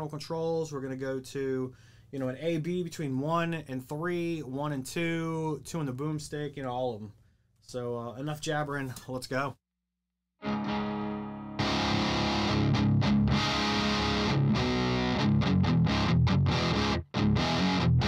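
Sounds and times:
distorted electric guitar riffing: 10.4 - 18.0.

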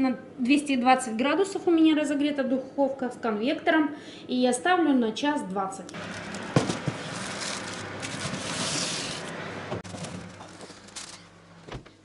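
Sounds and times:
aluminium foil crinkling: 6.0 - 11.3
tray scraping on oven rack: 6.0 - 11.3
baking tray knocks: 6.5 - 7.2.

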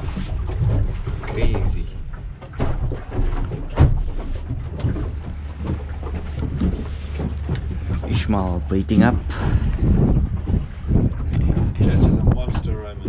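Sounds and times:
boat engine droning: 0.0 - 13.0
wind noise on microphone: 6.4 - 13.0.

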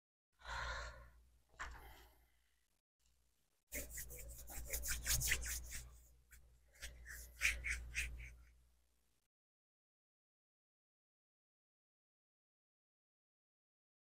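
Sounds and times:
scratchy rubbing strokes: 3.7 - 8.6.

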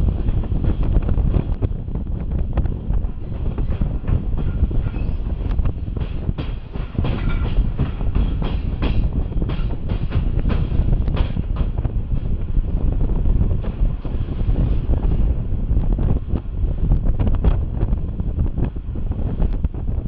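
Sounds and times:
train rumble: 0.0 - 20.0.

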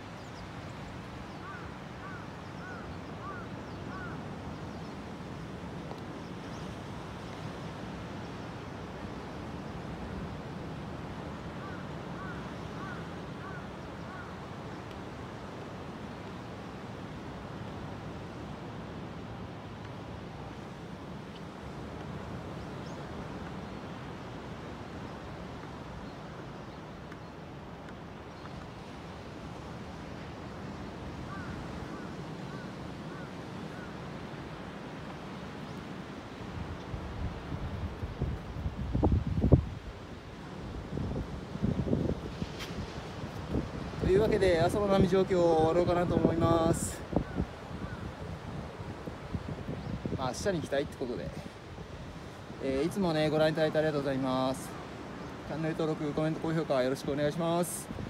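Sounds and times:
waves breaking on beach: 0.0 - 58.0
wind: 0.0 - 58.0
wind on microphone: 36.4 - 52.9
ocean surf breaking: 39.7 - 58.0.

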